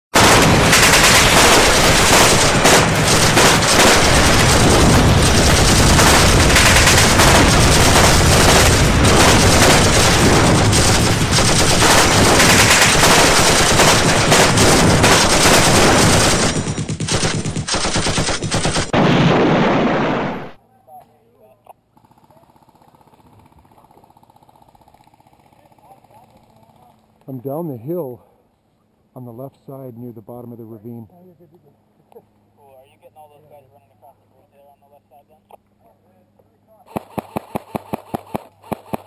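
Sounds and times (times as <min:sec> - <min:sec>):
machine-gun fire: 0:00.2 - 0:20.6, 0:36.9 - 0:39.0.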